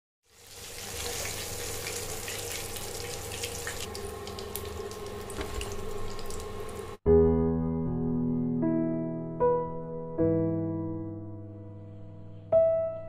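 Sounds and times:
chicken deep-frying in oil: 0:00.2 - 0:07.0.

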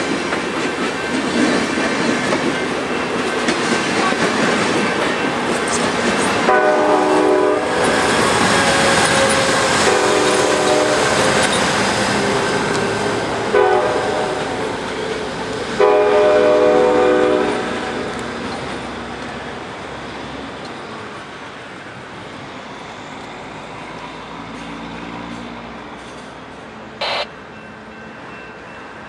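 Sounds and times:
train cars running on rails: 0:00.0 - 0:29.0
train horn blasts: 0:06.5 - 0:07.9, 0:09.2 - 0:11.2, 0:13.5 - 0:14.4, 0:15.8 - 0:18.1, 0:27.0 - 0:27.3.

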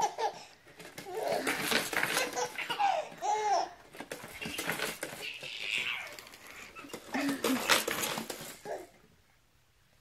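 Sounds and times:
baby laughing: 0:00.0 - 0:03.8.

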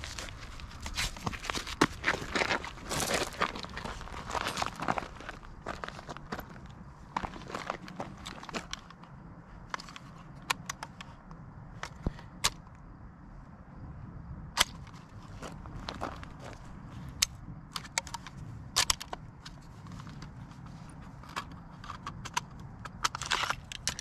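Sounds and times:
feet shifting on gravel: 0:00.0 - 0:08.7, 0:15.3 - 0:17.0
low steady rumble: 0:00.0 - 0:23.9
firearm handling clicks: 0:08.2 - 0:11.1, 0:17.1 - 0:20.3, 0:21.2 - 0:24.0.

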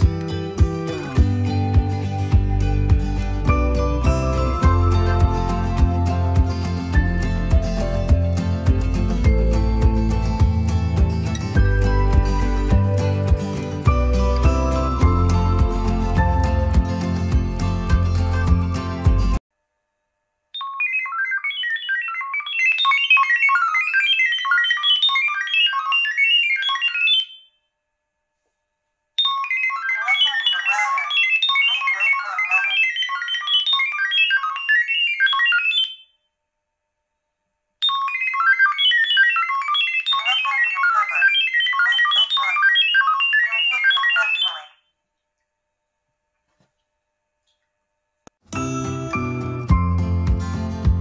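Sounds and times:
rapid beeping tones: 0:20.6 - 0:27.5, 0:29.2 - 0:36.0, 0:37.8 - 0:44.7.

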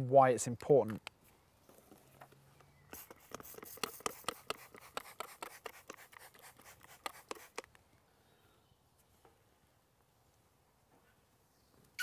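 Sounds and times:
spray bottle spritzing: 0:02.9 - 0:07.8.

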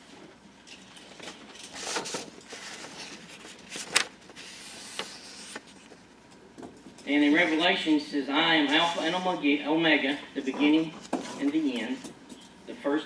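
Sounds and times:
paper pages rustling: 0:01.8 - 0:06.0.

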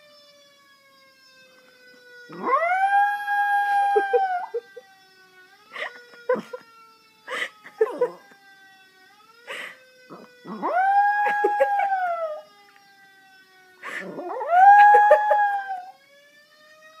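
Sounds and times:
dog howling: 0:02.3 - 0:04.6, 0:10.5 - 0:12.4, 0:14.0 - 0:15.9.

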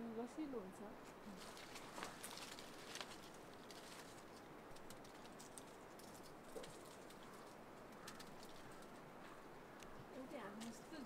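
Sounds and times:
leaves and twigs rustling: 0:00.0 - 0:11.0.

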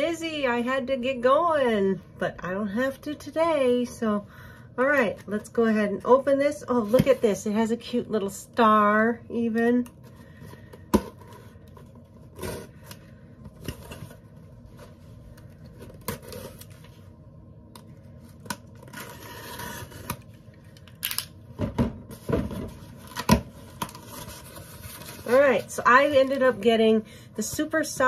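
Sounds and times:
cardboard tearing and scraping: 0:12.2 - 0:12.9, 0:15.8 - 0:16.8, 0:18.7 - 0:20.2.

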